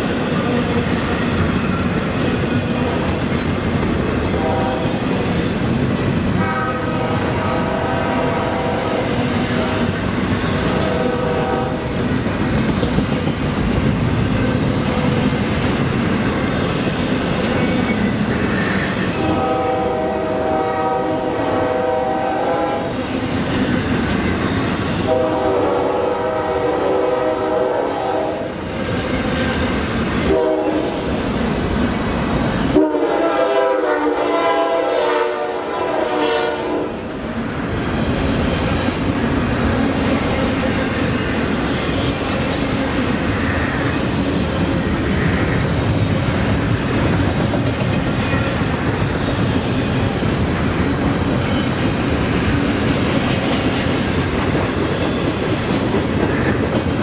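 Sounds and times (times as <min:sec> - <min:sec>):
train wheels rumbling on rails: 0:00.0 - 0:57.0
train horn chord: 0:04.4 - 0:05.0, 0:06.4 - 0:09.9, 0:10.5 - 0:11.9, 0:19.2 - 0:23.0, 0:25.1 - 0:28.6, 0:30.3 - 0:31.0, 0:32.7 - 0:37.0.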